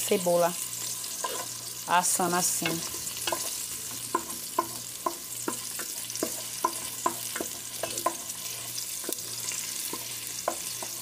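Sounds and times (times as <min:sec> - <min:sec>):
garlic and onion sizzling in oil: 0:00.0 - 0:11.0
wooden spoon knocking on pot: 0:04.1 - 0:08.2, 0:09.9 - 0:11.0.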